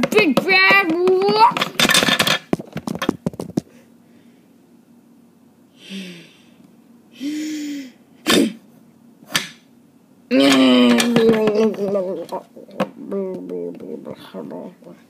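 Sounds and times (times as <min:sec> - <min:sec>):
plastic toys clattering: 0:00.0 - 0:03.6, 0:10.4 - 0:12.4.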